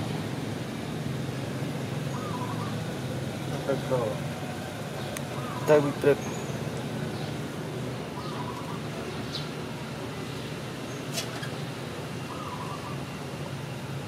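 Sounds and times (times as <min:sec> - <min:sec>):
bird calling: 0:02.0 - 0:03.0, 0:03.6 - 0:07.4, 0:08.1 - 0:09.6, 0:12.2 - 0:13.2.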